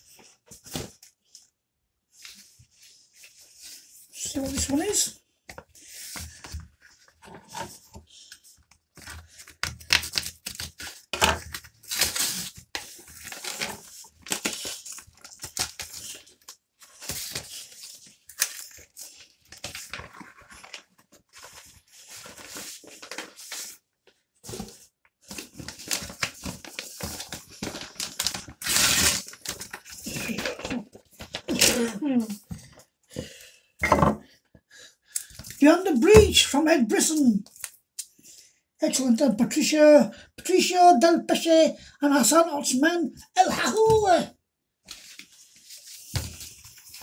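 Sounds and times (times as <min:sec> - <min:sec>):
cardboard mailer tearing: 0:09.9 - 0:16.2, 0:25.6 - 0:30.5.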